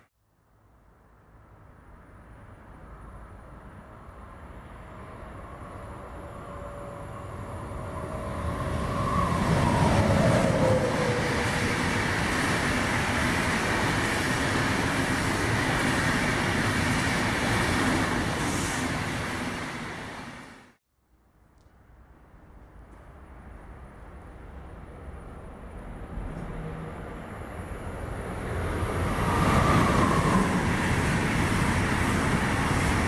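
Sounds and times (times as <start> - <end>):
electric locomotive whine: 3.1 - 20.7, 24.8 - 33.0.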